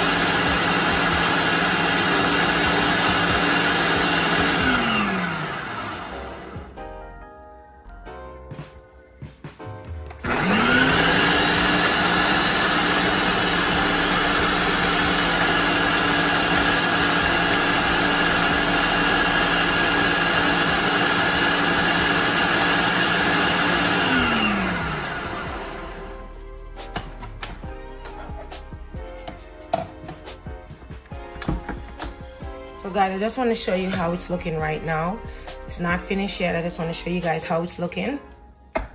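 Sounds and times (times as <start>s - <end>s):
blender motor running: 0.0s - 6.7s, 10.2s - 26.1s.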